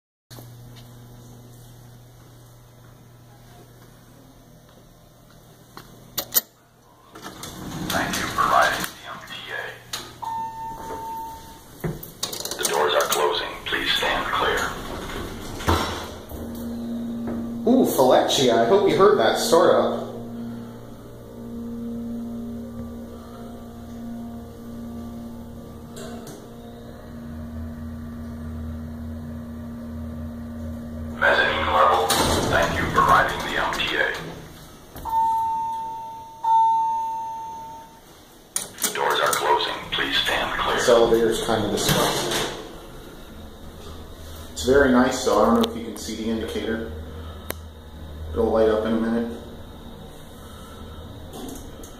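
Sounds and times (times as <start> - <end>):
low electrical hum: 0.3 - 51.9
steady fixed tone: 16.2 - 34.2.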